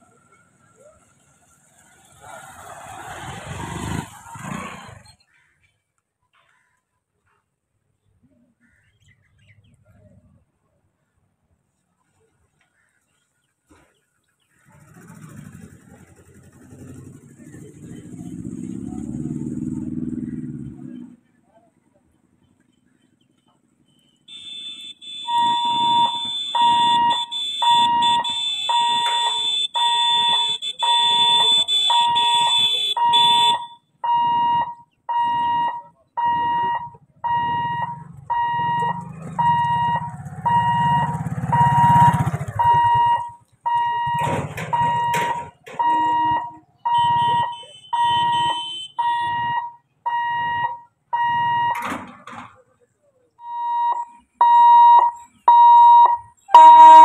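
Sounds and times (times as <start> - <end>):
motorcycle engine passing: 1.0 - 5.2, 14.6 - 21.2, 37.2 - 44.0
pulsed electronic warning tone: 25.1 - 51.8, 53.5 - 57.0.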